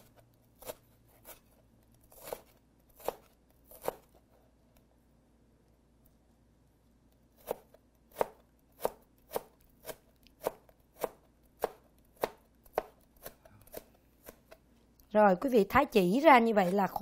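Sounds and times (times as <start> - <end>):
knife chopping on plastic board: 0.0 - 1.4, 2.1 - 4.1, 7.4 - 14.6.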